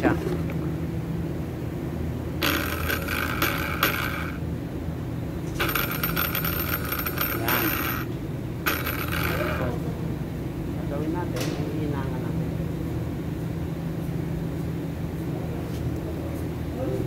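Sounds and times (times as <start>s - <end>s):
small electric motor running: 2.4s - 4.5s, 5.6s - 10.0s.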